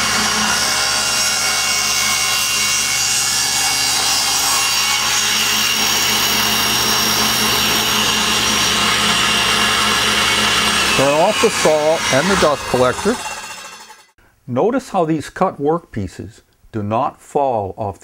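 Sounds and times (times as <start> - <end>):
dust collector drone: 0.0 - 14.1
table saw cutting plywood: 0.0 - 14.2.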